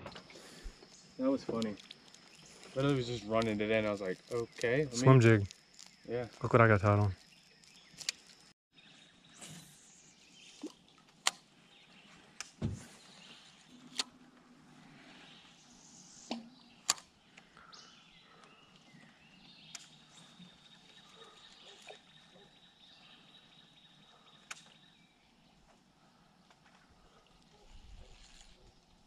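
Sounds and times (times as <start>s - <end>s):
thump on boat hull: 12.6s - 12.9s.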